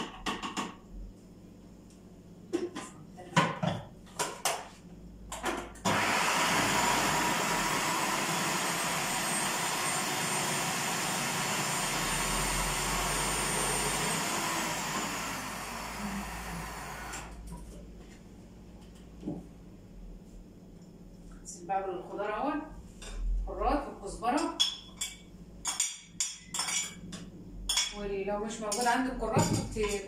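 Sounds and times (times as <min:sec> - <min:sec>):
food processor motor grinding: 0:05.9 - 0:17.4.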